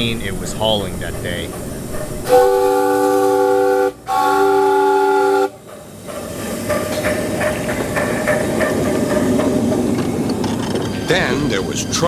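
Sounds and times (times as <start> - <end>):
hissing steam: 0.0 - 12.0
steam locomotive whistle: 2.2 - 5.6.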